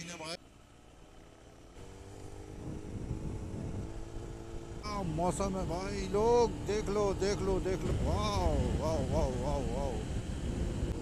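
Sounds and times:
motorcycle engine running: 0.0 - 11.0
wind rumbling on microphone: 2.5 - 11.0.

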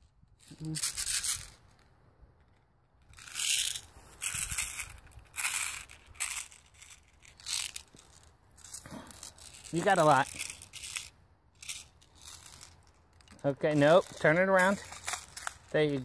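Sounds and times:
footsteps crunching dry leaves: 3.7 - 11.1, 12.1 - 16.0.

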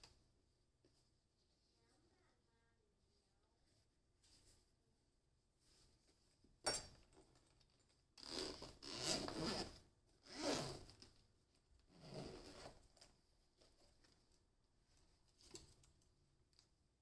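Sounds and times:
zipper rasping open: 8.2 - 10.9, 11.9 - 12.8.

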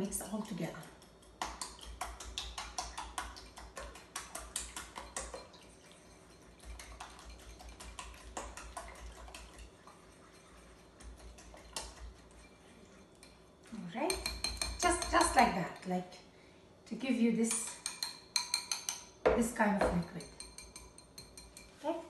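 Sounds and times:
fork clinking against bowl: 14.1 - 15.4, 17.5 - 19.1, 20.2 - 21.8.

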